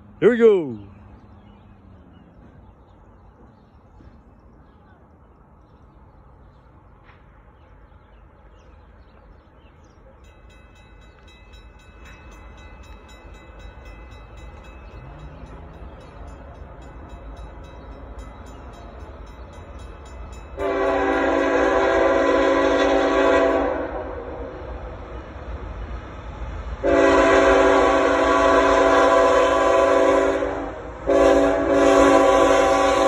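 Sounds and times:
diesel freight train rumble: 0.0 - 33.0
distant train horn: 20.3 - 24.9, 26.8 - 33.0
locomotive air horn blast: 20.6 - 24.6, 26.8 - 33.0.

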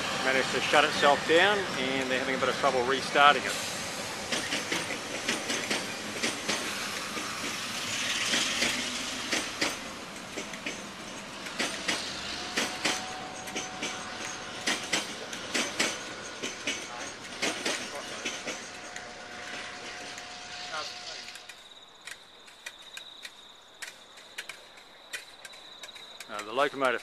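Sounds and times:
rushing hiss: 0.0 - 21.7
train wheels clattering over rails: 0.0 - 27.0.

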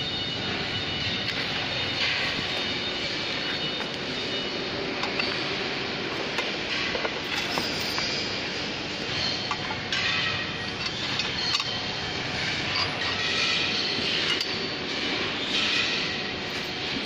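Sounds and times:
loud background noise: 0.0 - 17.0
metal tubes clicking and knocking: 9.1 - 15.9.

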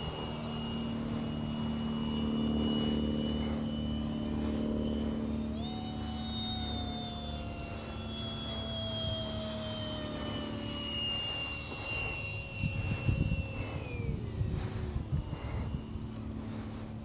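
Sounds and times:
model jet motor whine: 0.0 - 17.0.

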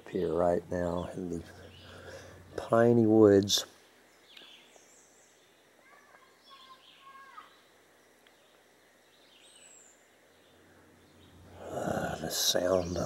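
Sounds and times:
faint high bird chirps: 3.8 - 13.0.

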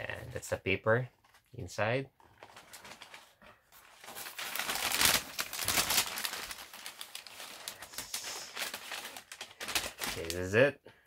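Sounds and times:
wrapping paper rustling: 2.2 - 10.6.

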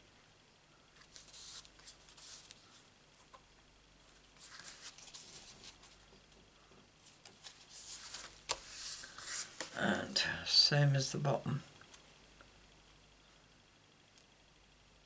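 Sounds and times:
fingers handling card stock: 7.2 - 9.7.

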